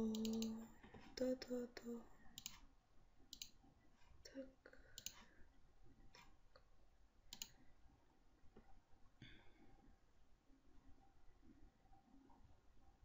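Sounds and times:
faint computer mouse clicks: 0.1s - 0.6s, 2.4s - 2.6s, 3.3s - 3.6s, 5.0s - 5.3s, 7.3s - 7.6s.

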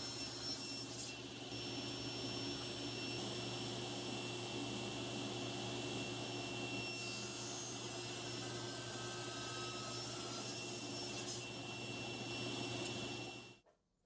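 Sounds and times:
table saw cutting wood: 0.0s - 13.6s.

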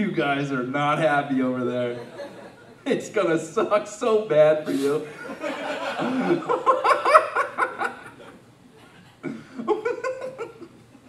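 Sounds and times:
small audience laughing: 2.0s - 2.8s, 5.1s - 8.4s, 9.2s - 11.0s.

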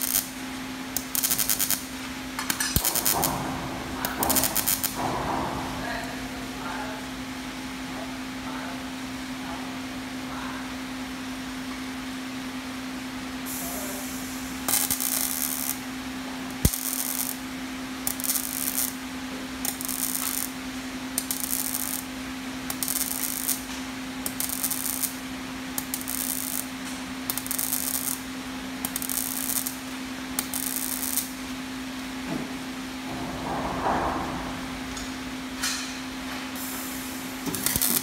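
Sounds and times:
welding arc crackling hisses: 0.0s - 6.4s, 13.4s - 32.6s, 36.5s - 38.0s
steady machine hum: 0.0s - 35.6s.

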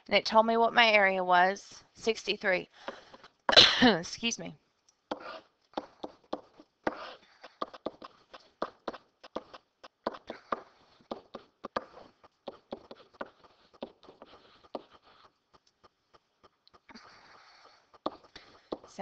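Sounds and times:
stylus tapping and scratching: 2.8s - 3.4s, 4.9s - 19.0s.

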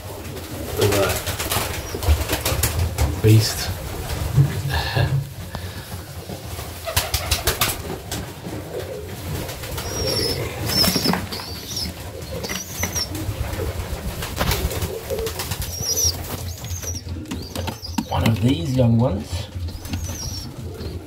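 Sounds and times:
pigeons cooing: 0.0s - 21.0s
wing flapping: 0.0s - 21.0s.

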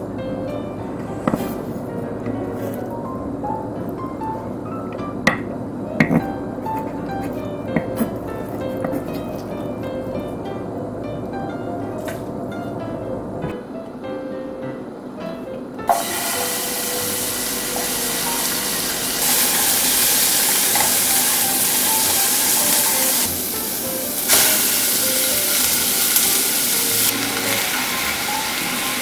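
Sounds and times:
soft background music: 0.0s - 29.0s
vegetables sizzling in oil: 15.9s - 29.0s.

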